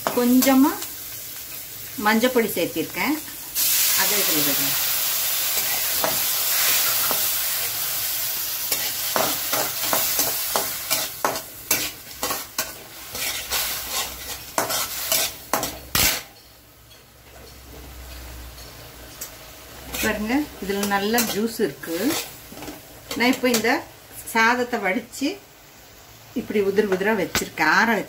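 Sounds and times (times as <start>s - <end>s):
liquid sizzling in hot oil: 0.0s - 28.0s
metal spatula scraping pan: 8.7s - 16.3s, 19.9s - 23.6s.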